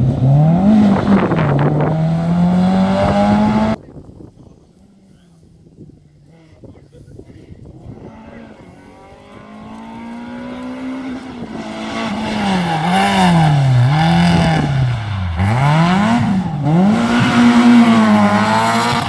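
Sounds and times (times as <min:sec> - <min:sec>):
rally car engine revving: 0:00.0 - 0:03.8, 0:07.6 - 0:19.0.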